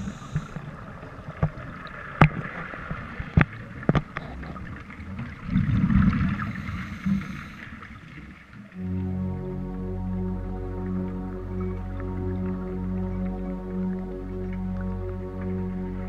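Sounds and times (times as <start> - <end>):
steady watery hiss: 0.0 - 1.0, 5.8 - 8.4
exhaled bubbles gurgling: 0.0 - 16.0
diver breathing through regulator: 6.4 - 7.8.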